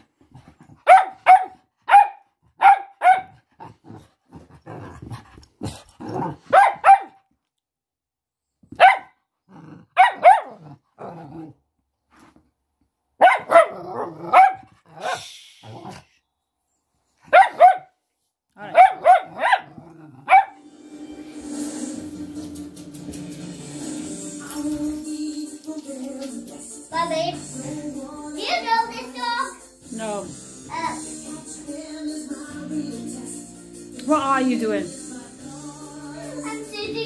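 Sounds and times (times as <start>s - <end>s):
dog barking: 0.8s - 3.4s, 6.5s - 7.2s, 8.7s - 9.2s, 10.0s - 10.6s, 13.2s - 15.2s, 17.3s - 18.0s, 18.6s - 20.6s.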